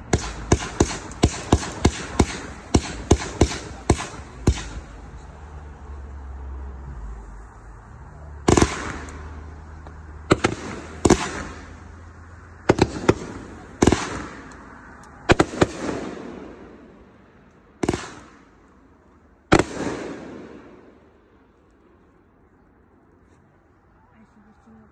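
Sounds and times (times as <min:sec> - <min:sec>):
fireworks bangs: 0:00.0 - 0:05.6, 0:08.4 - 0:18.6, 0:19.5 - 0:21.2.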